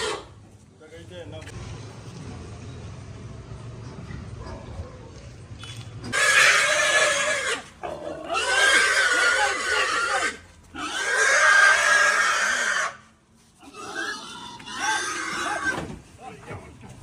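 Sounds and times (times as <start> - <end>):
pig squealing: 0.0 - 0.3, 6.1 - 13.0, 13.6 - 15.9.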